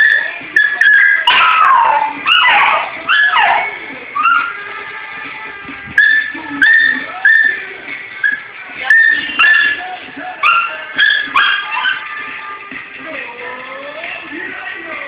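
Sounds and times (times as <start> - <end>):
dog yelping and howling: 0.0 - 4.6, 6.0 - 7.6, 8.2 - 9.8, 10.4 - 12.1.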